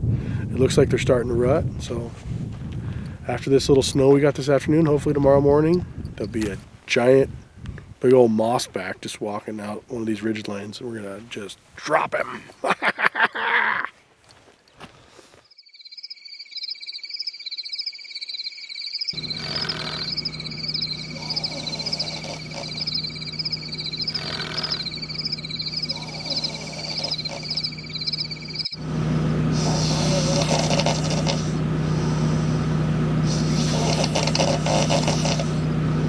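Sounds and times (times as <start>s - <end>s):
pulsing high insect trills: 15.5s - 35.7s
low generator hum: 19.2s - 36.0s.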